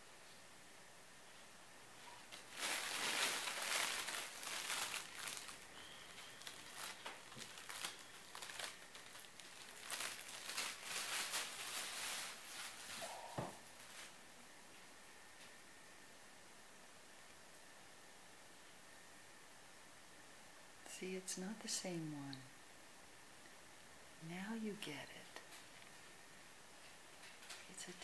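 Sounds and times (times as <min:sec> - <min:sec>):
crinkling and rustling: 0:02.0 - 0:14.3, 0:26.8 - 0:28.0.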